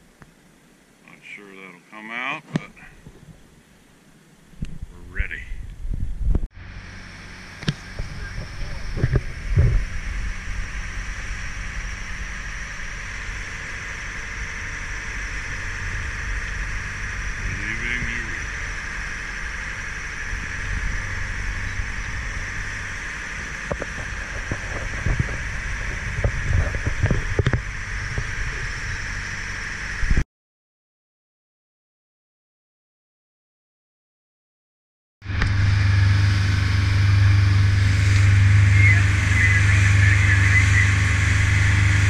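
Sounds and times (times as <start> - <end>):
motorboat engine running: 6.1 - 30.2, 35.2 - 42.0
low thumps: 7.6 - 17.5
wake washing: 35.4 - 42.0.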